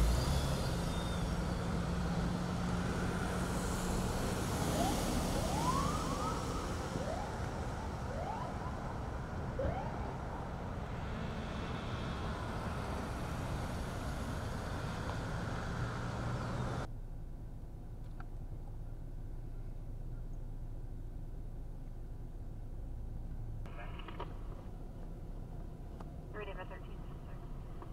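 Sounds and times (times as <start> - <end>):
short rising siren chirps: 0.0 - 10.3
engines running slowly: 0.0 - 27.9
road noise: 0.0 - 27.9.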